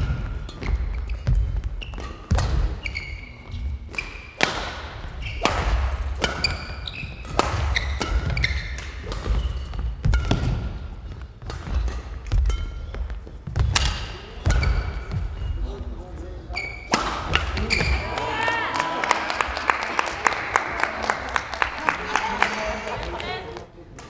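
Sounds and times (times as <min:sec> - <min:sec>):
racket striking shuttlecock: 0:00.0 - 0:02.8, 0:03.9 - 0:15.3, 0:16.8 - 0:18.0
shoes squeaking on court floor: 0:00.0 - 0:18.4.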